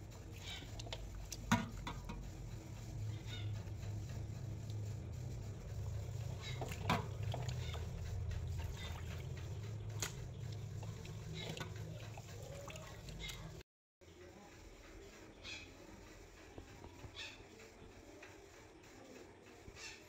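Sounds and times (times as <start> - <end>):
steady low hum: 0.0 - 20.0
wet squelching and sloshing: 5.9 - 13.6.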